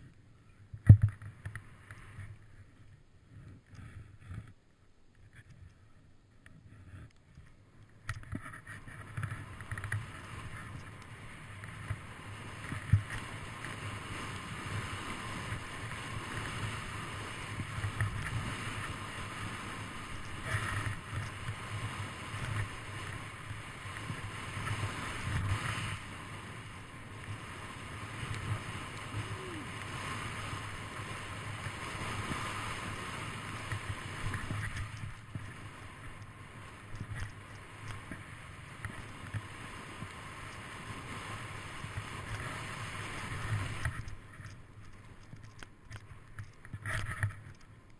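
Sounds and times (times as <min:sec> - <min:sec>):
snowboard sliding on snow: 0:08.4 - 0:45.4
camera rumble: 0:15.5 - 0:47.9.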